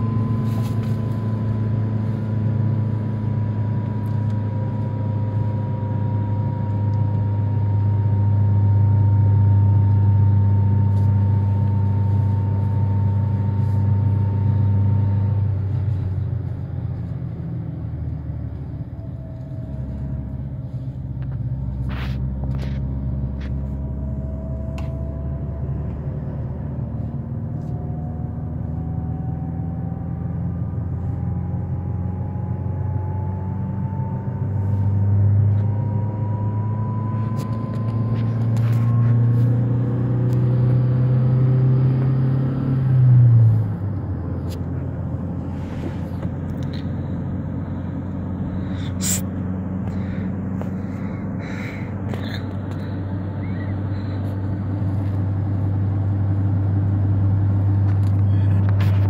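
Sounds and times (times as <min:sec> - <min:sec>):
car cabin engine and road rumble: 0:00.0 - 0:59.0
deeper engine note: 0:00.0 - 0:59.0
faint rising whine: 0:00.0 - 0:59.0.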